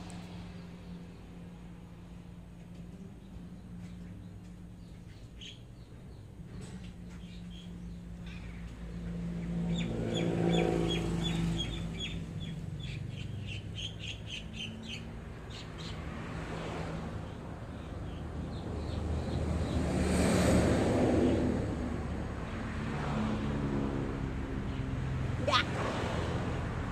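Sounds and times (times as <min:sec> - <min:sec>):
motor vehicle hum: 0:00.0 - 0:26.9
small birds chirping: 0:02.6 - 0:16.1.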